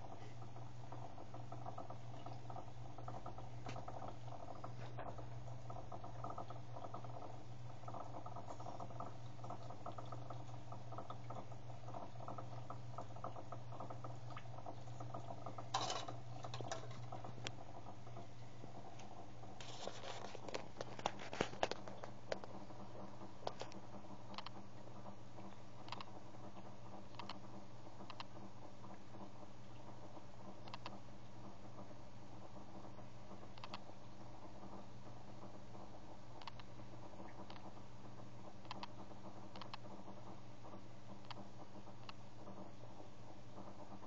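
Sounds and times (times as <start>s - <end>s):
liquid trickling into plastic tank: 0.0s - 24.0s
small pump humming: 0.0s - 44.0s.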